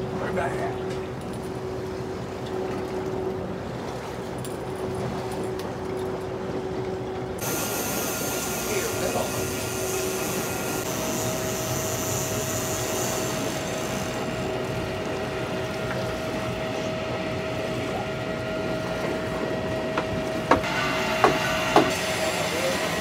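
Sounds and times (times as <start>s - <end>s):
boat engines running: 0.0s - 23.0s
steady hum: 4.6s - 23.0s
water rushing: 7.4s - 23.0s.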